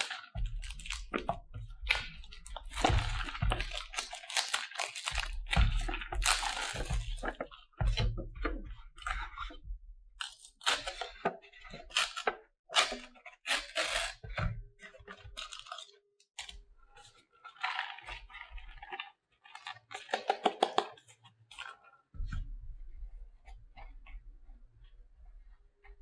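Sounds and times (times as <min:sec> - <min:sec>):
packaging crinkling and rustling: 0:00.0 - 0:08.2, 0:10.2 - 0:14.2, 0:15.1 - 0:16.5, 0:17.4 - 0:21.8.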